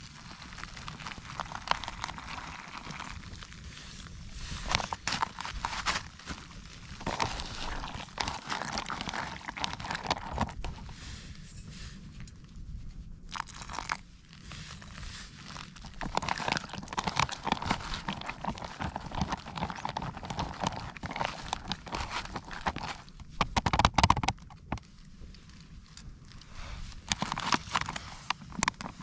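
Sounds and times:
boots crunching on stony path: 4.5 - 10.6, 15.7 - 23.1.

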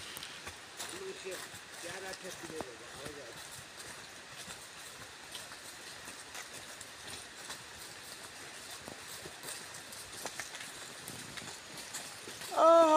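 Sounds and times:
footsteps crunching on dry leaves: 0.0 - 12.9
steady background hiss: 0.0 - 12.9.

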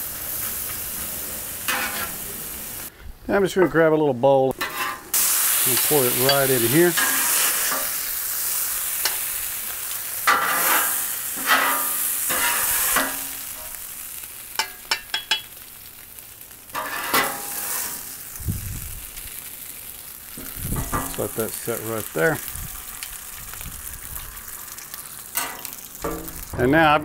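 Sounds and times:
meat sizzling on a griddle: 0.0 - 2.9, 4.6 - 27.0
metal spatula scraping griddle: 1.7 - 2.2, 4.6 - 8.0, 10.2 - 13.8, 16.7 - 18.3.

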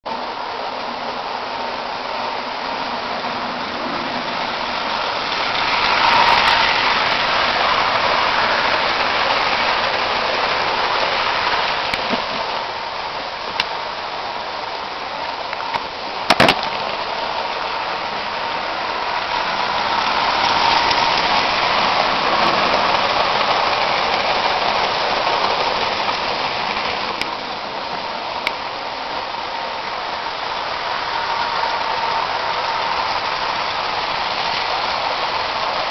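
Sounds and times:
model train rattling on rails: 0.1 - 35.9.

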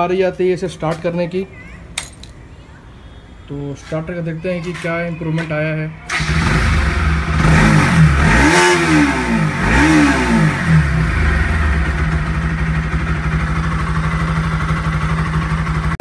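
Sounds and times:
motorcycle engine revving and idling: 6.1 - 16.0.

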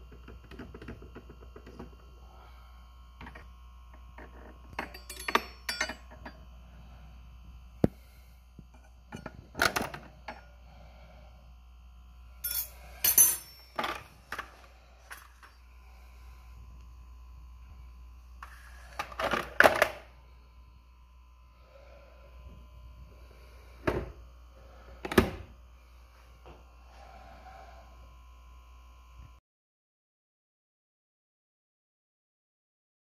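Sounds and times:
metal blade scraping and clinking: 12.4 - 13.8.

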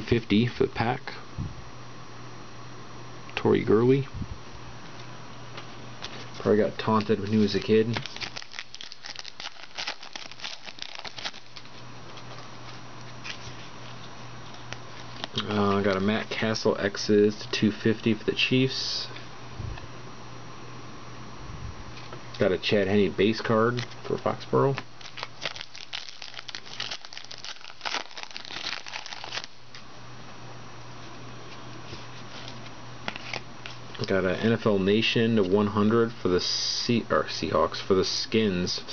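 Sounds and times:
steady low hum: 0.0 - 38.9
plastic wrapper crinkling: 6.0 - 16.1, 24.8 - 29.8
trading cards flipping: 24.7 - 29.8, 31.9 - 34.1.

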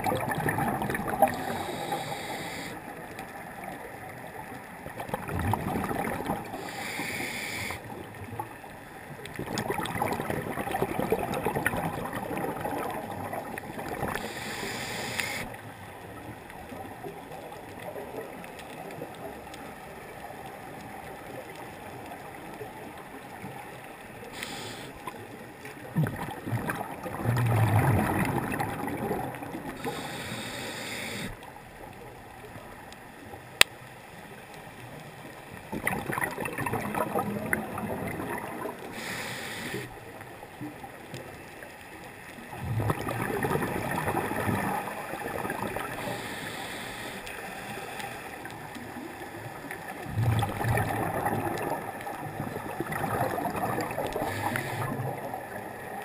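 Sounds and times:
exhaled bubbles underwater: 0.0 - 31.4, 35.2 - 41.7, 42.3 - 56.0
regulator hiss on inhalation: 1.3 - 2.8, 6.6 - 7.9, 14.2 - 15.6, 24.4 - 25.1, 29.8 - 31.4, 38.9 - 40.0, 46.0 - 48.3, 54.2 - 55.0.

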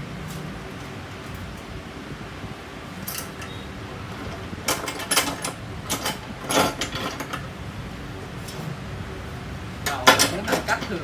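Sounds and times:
metal vise clicks and rattles: 4.2 - 7.5, 9.8 - 11.0.

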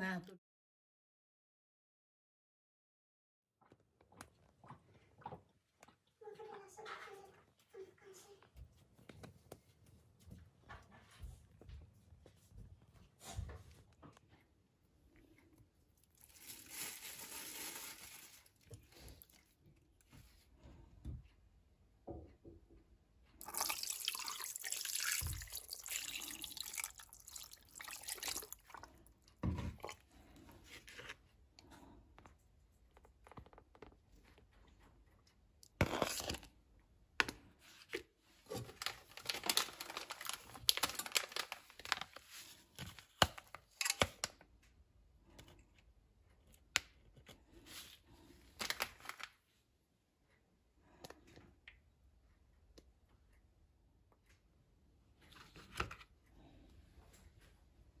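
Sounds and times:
water pouring and splashing: 16.2 - 19.0, 23.4 - 30.0.

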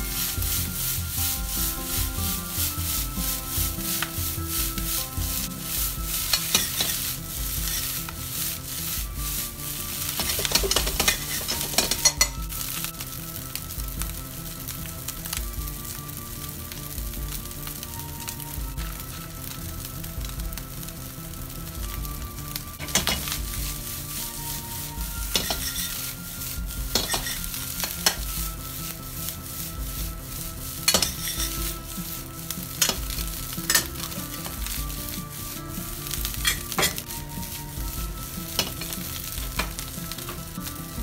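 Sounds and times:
spatula scraping a pan: 0.0 - 13.1, 22.7 - 41.0
rice sizzling in a frying pan: 0.0 - 41.0.

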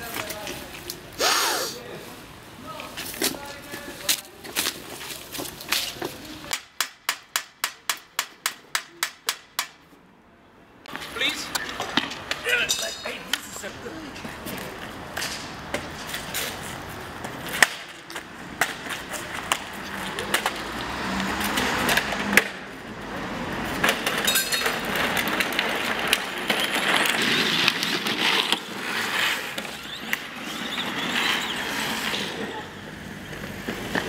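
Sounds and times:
plastic toy wheels rolling on asphalt: 2.6 - 6.5, 10.9 - 34.0.

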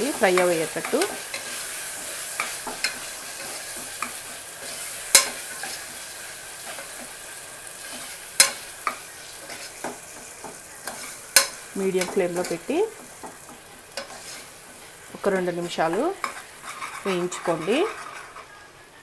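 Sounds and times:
onion sizzling in oil: 0.0 - 18.7
metal spoon scraping pot: 15.2 - 18.5.

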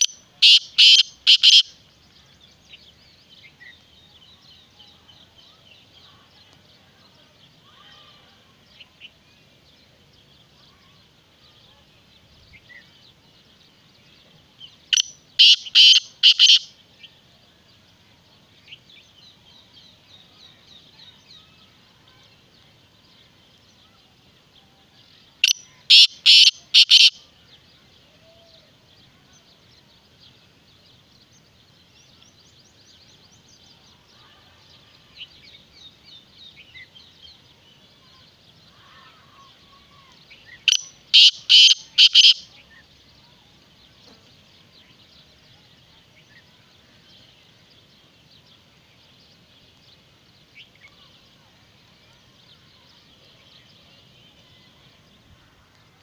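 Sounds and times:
bird harsh call: 0.0 - 1.8, 14.9 - 16.7, 25.4 - 27.2, 38.8 - 42.7.

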